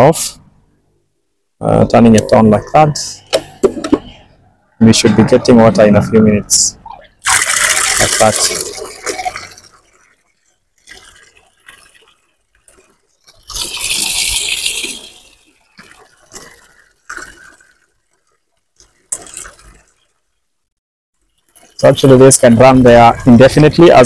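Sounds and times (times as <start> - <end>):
water pouring and splashing into basin: 7.2 - 20.4, 21.2 - 24.0.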